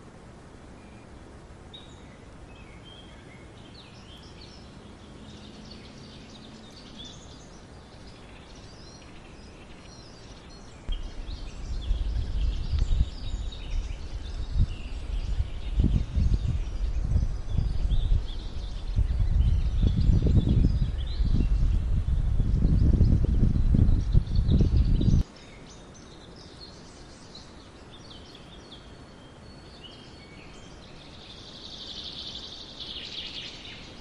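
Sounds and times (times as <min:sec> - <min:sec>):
small birds chirping: 0:00.7 - 0:34.0
gusty low rumble: 0:10.9 - 0:25.2.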